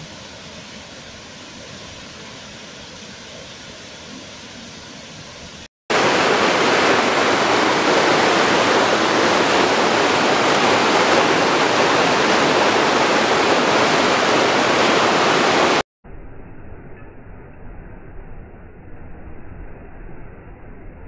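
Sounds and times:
water rushing over rocks: 5.9 - 15.8.

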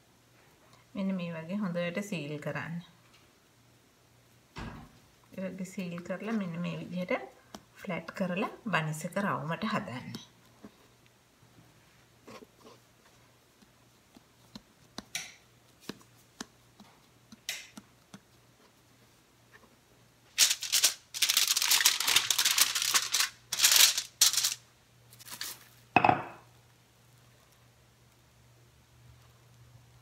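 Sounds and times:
hands working dough: 5.3 - 24.5
aluminium foil crinkling: 20.3 - 25.9.

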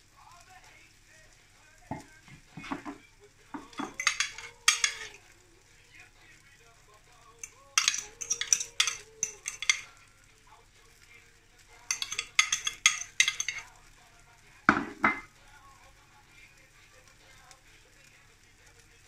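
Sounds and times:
fork clinking on glass bowl: 1.9 - 3.0, 3.6 - 5.2, 7.4 - 10.0, 11.9 - 13.7, 14.7 - 15.3.

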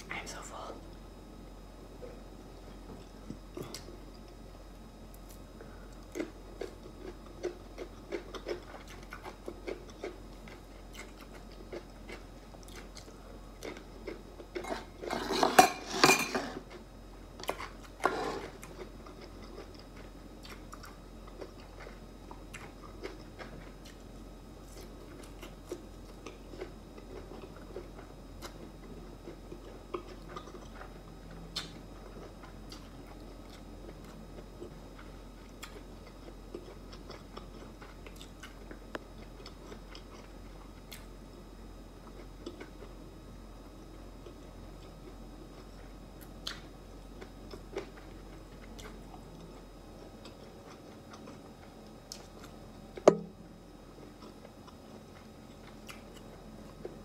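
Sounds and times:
chewing with wet mouth clicks: 6.0 - 14.7, 17.4 - 24.1, 24.7 - 41.1, 42.0 - 43.0, 44.2 - 53.2, 54.1 - 57.0.

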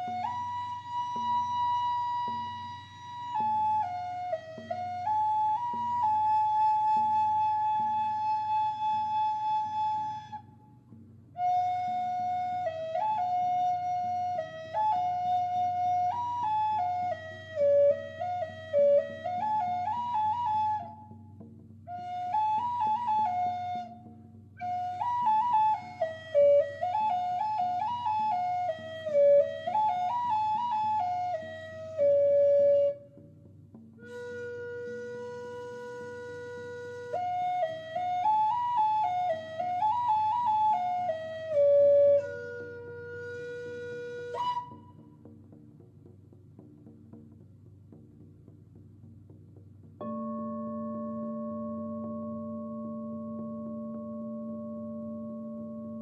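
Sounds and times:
high-pitched flute melody: 0.0 - 10.6, 11.4 - 21.3, 21.9 - 33.2, 34.0 - 45.1.

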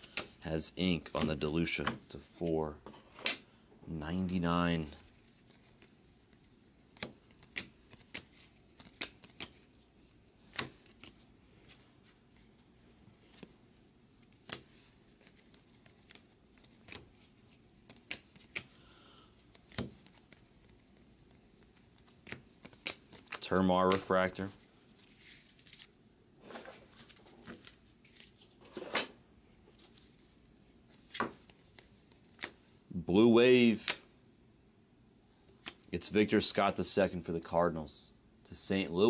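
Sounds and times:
cards snapping and clicking: 6.9 - 9.7, 10.5 - 11.1, 17.8 - 18.8, 19.5 - 20.4, 22.0 - 24.1.

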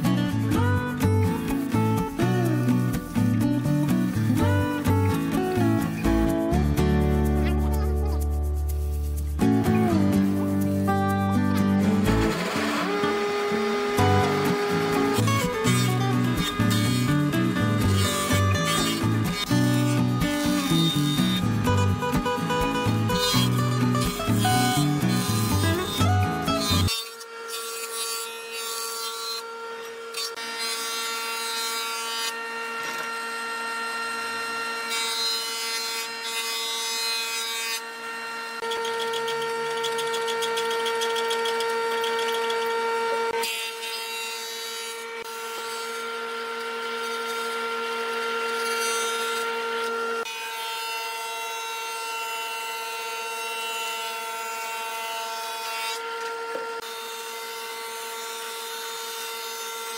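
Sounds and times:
cutter head rasping timber: 0.0 - 59.9
planer motor hum: 9.6 - 28.2.

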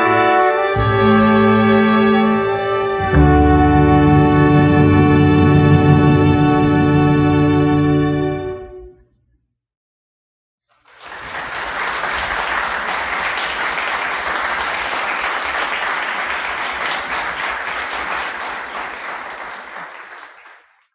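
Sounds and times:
audience applauding: 10.7 - 20.9.

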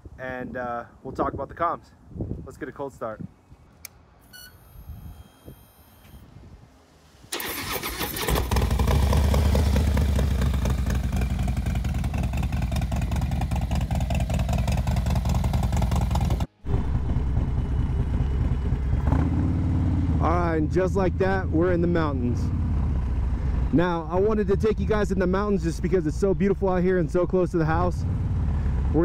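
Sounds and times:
motorcycle starter cranking: 7.3 - 9.5
motorcycle engine running loudly: 8.4 - 23.7, 27.9 - 29.0.

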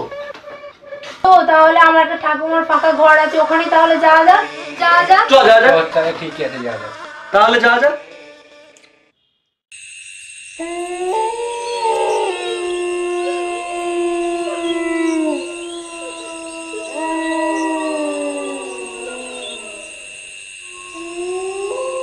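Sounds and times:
dogs howling: 10.6 - 22.0
high-pitched whine: 10.6 - 22.0.

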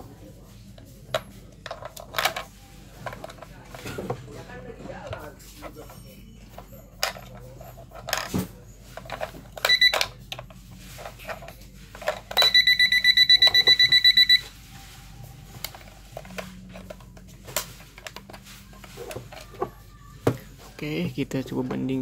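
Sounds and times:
alarm clock beeping: 9.6 - 10.2, 12.4 - 14.6.

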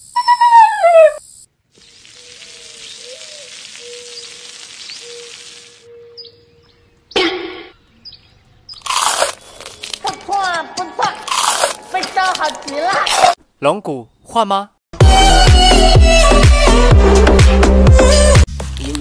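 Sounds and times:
food sizzling in oil: 1.8 - 5.8
crunchy bite: 8.7 - 10.0, 11.2 - 12.4.

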